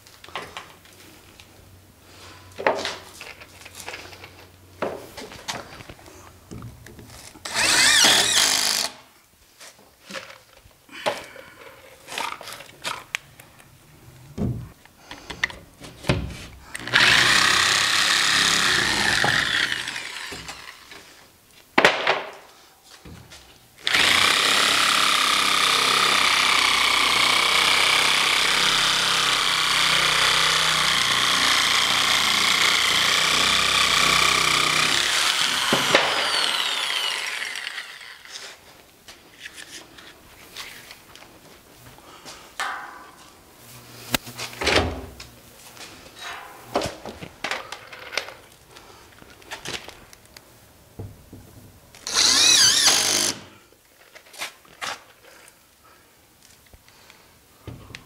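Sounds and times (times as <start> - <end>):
power tool cutting board: 7.5 - 9.0, 16.8 - 20.9, 23.9 - 38.4, 52.0 - 53.5.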